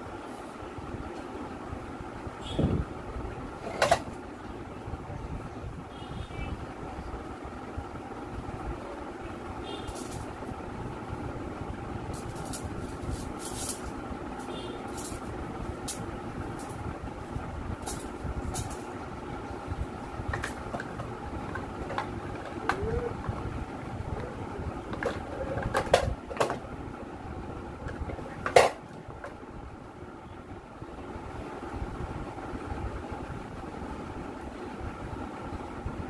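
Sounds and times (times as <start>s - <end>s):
low mechanical rumble: 0.0s - 36.0s
hum: 1.6s - 36.0s.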